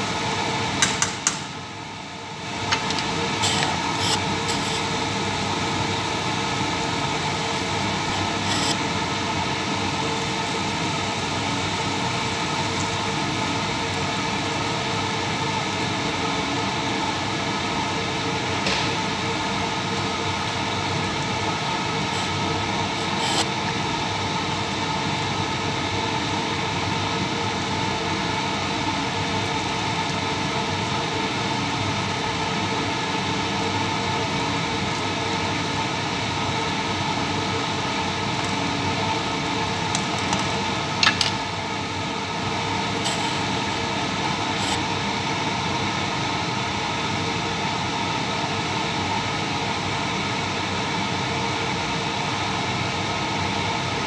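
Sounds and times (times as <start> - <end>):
ventilation fan whirring: 0.0 - 54.0.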